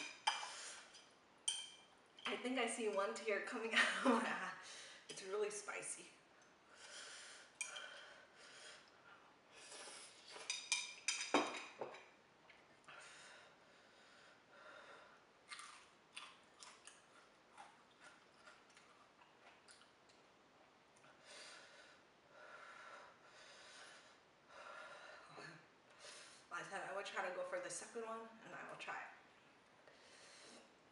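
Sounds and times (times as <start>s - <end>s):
person chewing: 15.5s - 20.3s.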